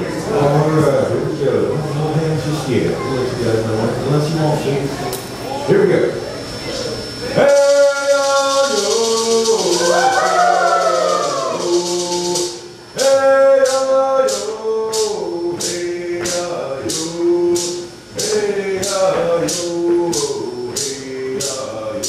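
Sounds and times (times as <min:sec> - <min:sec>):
rattle keeping a steady beat: 0:06.4 - 0:22.0
voices singing: 0:07.0 - 0:22.0.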